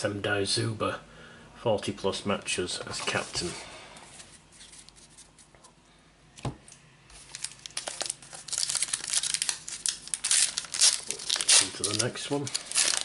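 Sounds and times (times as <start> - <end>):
foil pack crinkling and tearing: 7.2 - 13.0.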